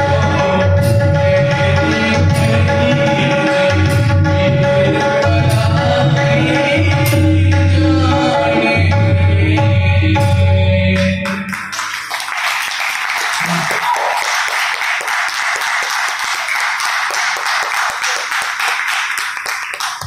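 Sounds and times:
harmonium and tabla: 0:00.0 - 0:14.8
audience clapping: 0:11.0 - 0:20.0.

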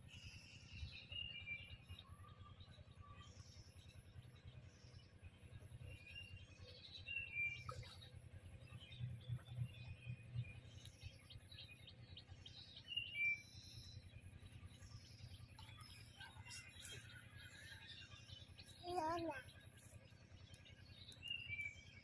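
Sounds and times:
small birds chirping: 0:00.0 - 0:22.0
steady low rumble: 0:02.6 - 0:18.8.

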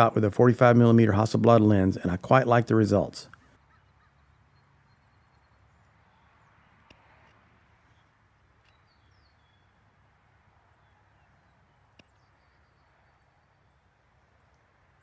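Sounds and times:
faint high bird chirps: 0:03.3 - 0:06.9, 0:07.8 - 0:09.9, 0:10.7 - 0:14.4.

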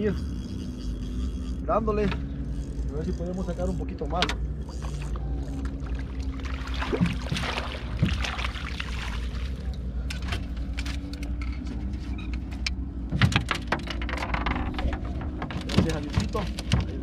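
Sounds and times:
boat motor humming: 0:00.0 - 0:17.0
short knocks: 0:14.7 - 0:17.0.

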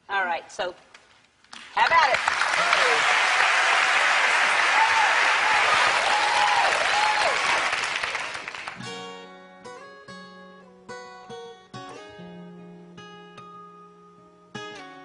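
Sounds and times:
audience applauding: 0:01.8 - 0:08.8
acoustic guitar picking: 0:08.8 - 0:15.0.

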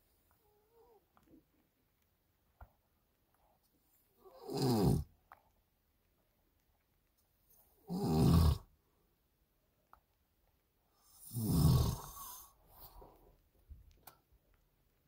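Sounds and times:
man snoring: 0:04.3 - 0:05.1, 0:07.9 - 0:08.7, 0:11.2 - 0:12.5.

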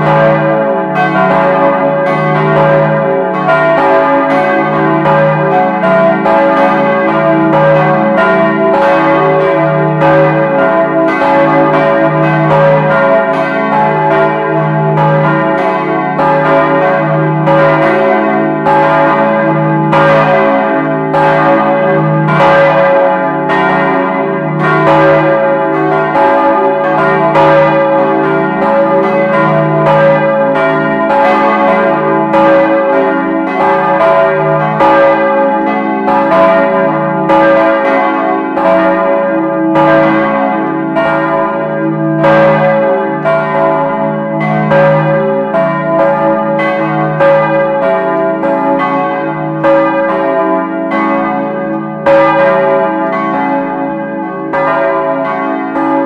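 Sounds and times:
church bells ringing: 0:00.0 - 0:56.0.

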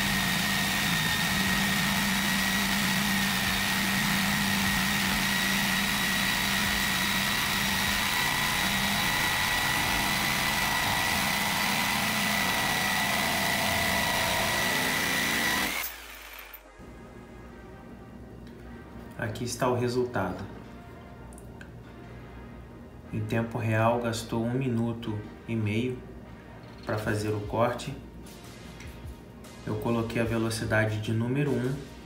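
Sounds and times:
jigsaw cutting metal: 0:00.0 - 0:16.7.

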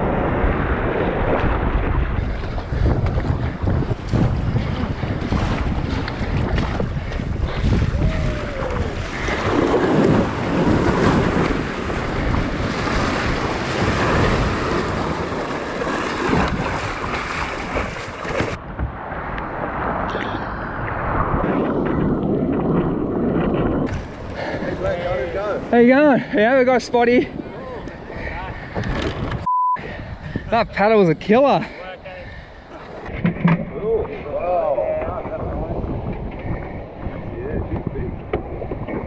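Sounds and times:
surf breaking and foaming: 0:00.0 - 0:29.4
wind buffeting microphone: 0:00.0 - 0:39.0.

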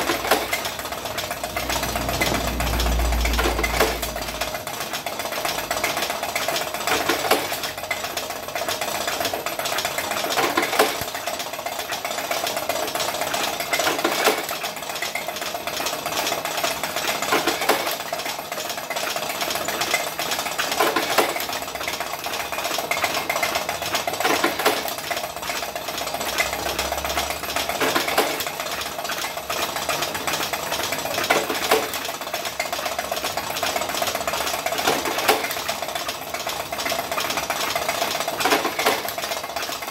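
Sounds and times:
machine hum: 0:00.0 - 0:07.0
machine clacking: 0:00.0 - 0:39.9
machine clicking: 0:00.0 - 0:39.9.

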